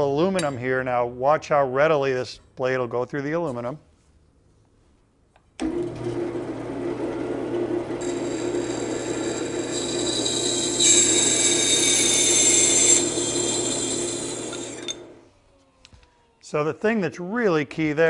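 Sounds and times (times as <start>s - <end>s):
band saw motor humming: 5.6s - 15.2s
saw blade whining through aluminum: 7.4s - 15.2s.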